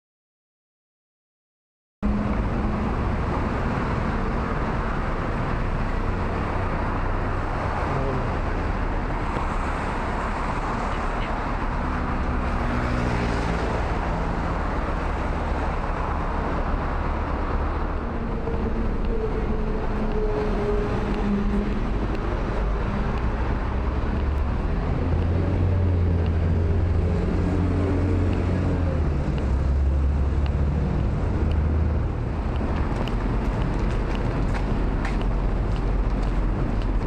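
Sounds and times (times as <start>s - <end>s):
cars passing: 2.0s - 37.0s
heavy vehicle engine rumble: 2.0s - 37.0s.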